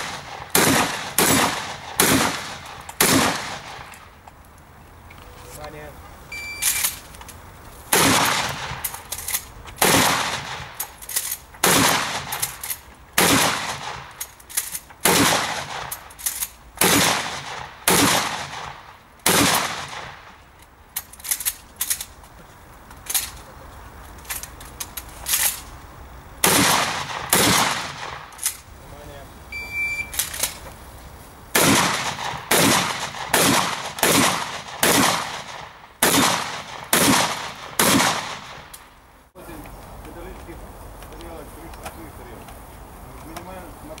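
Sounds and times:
shotgun shots: 0:00.0 - 0:04.0, 0:07.9 - 0:08.9, 0:09.8 - 0:10.8, 0:11.6 - 0:12.6, 0:13.2 - 0:14.2, 0:15.0 - 0:16.0, 0:16.8 - 0:20.4, 0:26.4 - 0:28.4, 0:31.5 - 0:38.8.

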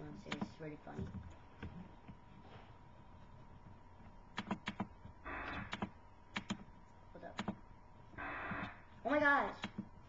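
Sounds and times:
computer keyboard clicks: 0:04.4 - 0:04.9, 0:05.5 - 0:06.6.

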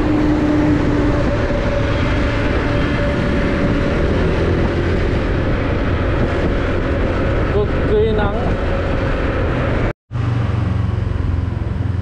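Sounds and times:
motorbike engine hum: 0:00.0 - 0:12.0
road noise: 0:00.0 - 0:12.0
wind rumble on microphone: 0:00.0 - 0:12.0.

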